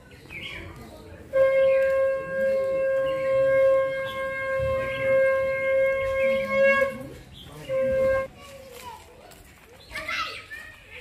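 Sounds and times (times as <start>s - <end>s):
long steady horn note: 1.3s - 8.3s.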